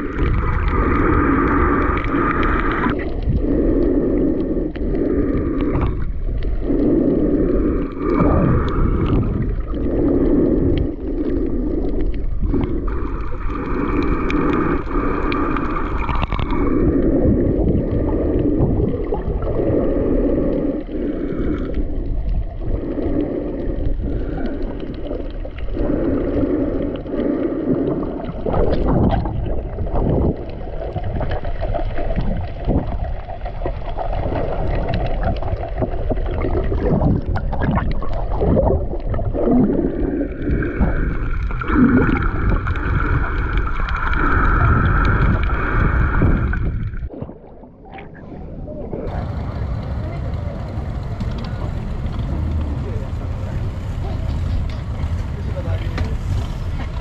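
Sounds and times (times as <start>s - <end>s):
wind rumbling on microphone: 0.0s - 57.0s
motorboat engine droning: 48.3s - 57.0s.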